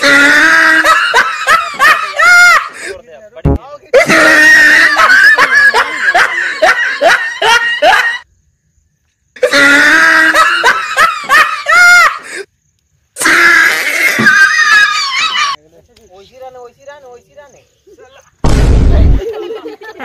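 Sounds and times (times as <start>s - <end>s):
person laughing heartily: 0.0s - 2.9s, 4.0s - 8.2s, 9.4s - 12.4s, 19.0s - 20.0s.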